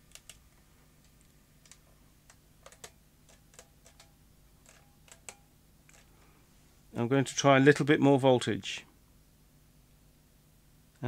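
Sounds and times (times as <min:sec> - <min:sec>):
faint steady low hum: 0:00.0 - 0:11.0.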